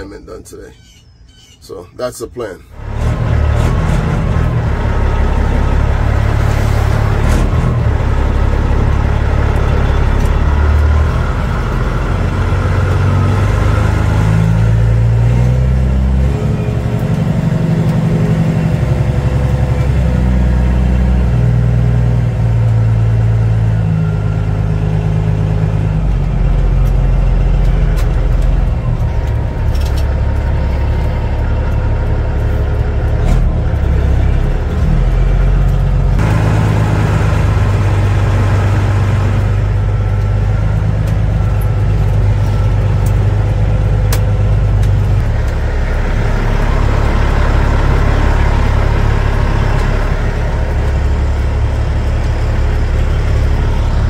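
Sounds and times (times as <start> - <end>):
truck diesel engine revving: 2.8 - 54.0.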